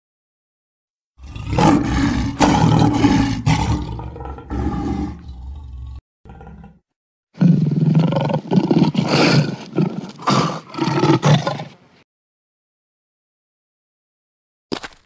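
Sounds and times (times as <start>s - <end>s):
lion roaring: 1.2s - 6.8s.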